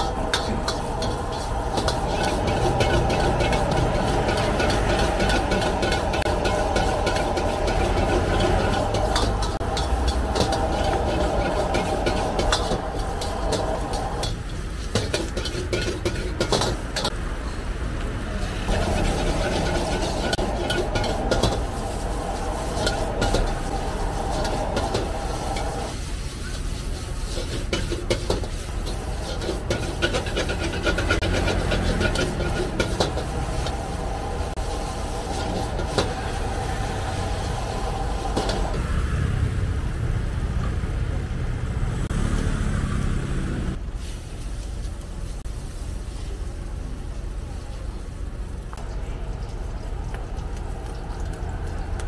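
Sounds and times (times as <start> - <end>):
metal ladle scraping wok: 0.0 - 17.2, 18.5 - 38.8
vegetables sizzling: 0.0 - 17.2, 18.2 - 52.0
gas burner rumble: 0.0 - 52.0.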